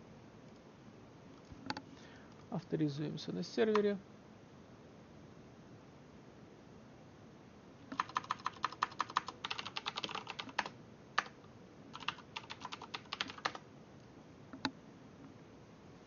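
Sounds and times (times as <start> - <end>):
keyboard typing: 7.9 - 13.6.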